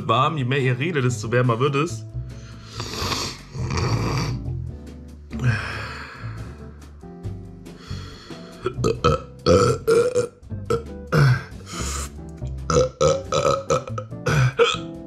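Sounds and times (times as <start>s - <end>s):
man burping: 8.6s - 12.1s, 12.7s - 15.0s.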